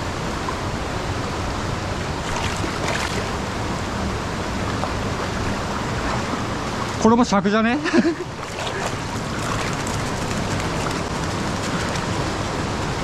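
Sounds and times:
stream water rushing: 0.0s - 13.0s.

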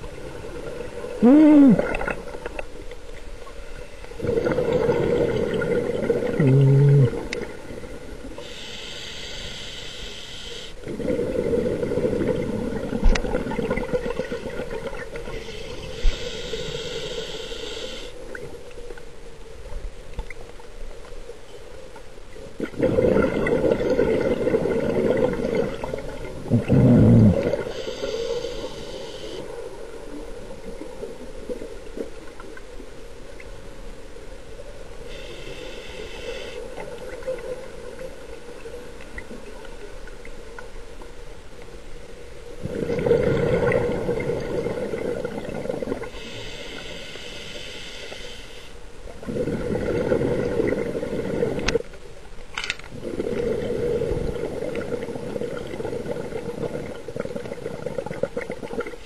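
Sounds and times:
exhaled bubbles gushing underwater: 4.2s - 8.0s, 10.8s - 16.1s, 22.6s - 27.8s, 42.6s - 46.2s, 49.2s - 51.9s, 52.9s - 59.0s
hissing inhale through regulator: 8.3s - 10.9s, 15.2s - 18.2s, 27.2s - 29.5s, 35.0s - 36.8s, 46.0s - 49.7s.

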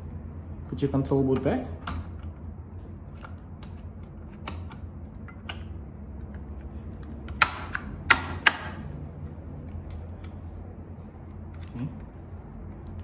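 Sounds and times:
sharp plastic snaps: 3.2s - 8.9s.

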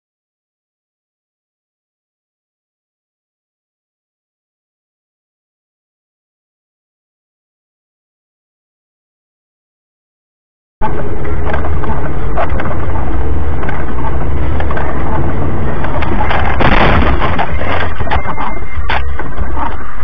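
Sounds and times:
crackles and clicks: 10.8s - 20.0s
distorted car cabin rumble: 10.8s - 20.0s.

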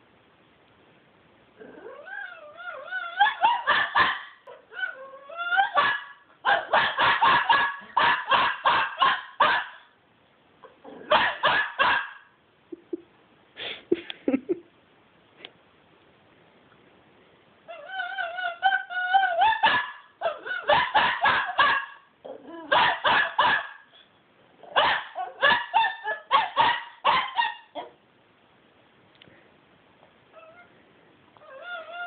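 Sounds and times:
puppy whining: 1.6s - 6.1s, 17.7s - 20.7s, 22.2s - 22.8s, 30.3s - 30.8s, 31.4s - 32.0s
puppy yipping barks: 3.0s - 9.9s, 11.1s - 12.3s, 18.2s - 22.0s, 22.7s - 23.9s, 24.6s - 28.0s.

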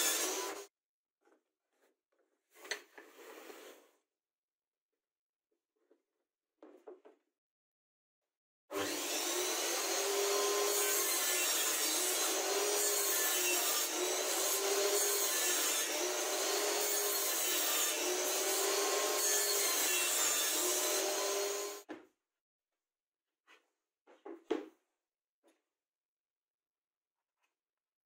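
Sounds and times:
table saw cutting chipboard: 0.0s - 0.7s, 8.7s - 21.9s.

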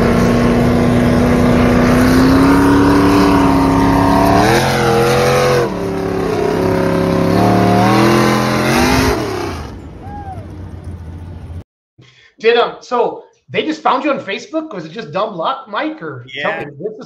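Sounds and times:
tractor engine running hard: 0.0s - 11.6s.

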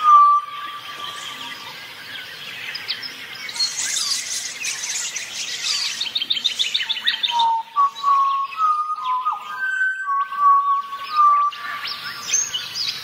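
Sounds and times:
steady whistled tone: 0.0s - 1.7s, 3.5s - 12.5s
birds chirping and calling: 0.0s - 13.0s
fast bird trill: 3.5s - 7.4s.

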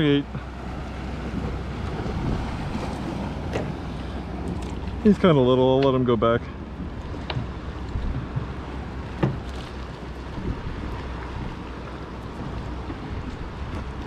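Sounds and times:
water lapping against hull: 0.0s - 14.0s
wind rumbling on microphone: 0.0s - 14.0s.

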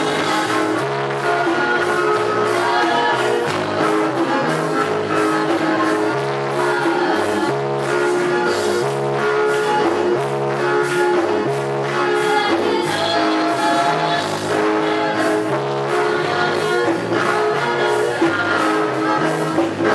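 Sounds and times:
woman singing: 0.0s - 7.8s, 12.1s - 19.9s
electronic keyboard playing: 0.0s - 19.9s.

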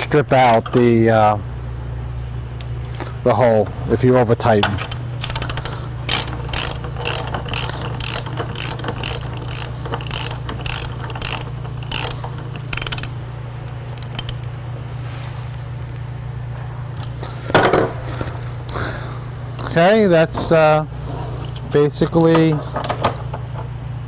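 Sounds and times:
steady low hum: 0.0s - 24.0s
socket ratchet clicking: 4.8s - 14.5s.

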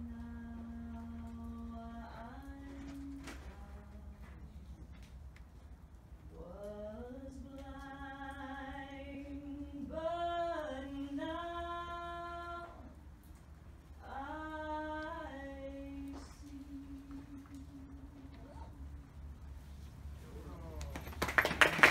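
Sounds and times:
woman chanting unaccompanied: 0.0s - 4.5s, 14.0s - 19.0s.

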